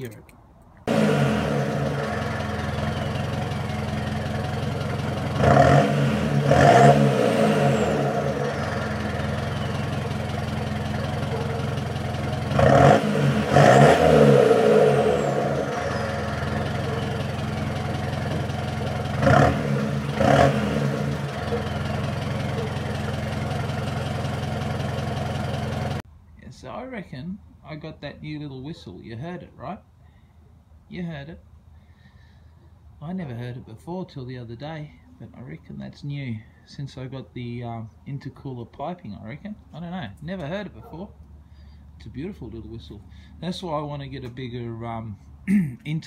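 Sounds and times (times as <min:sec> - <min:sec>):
diesel engine idling and revving: 0:00.8 - 0:26.1.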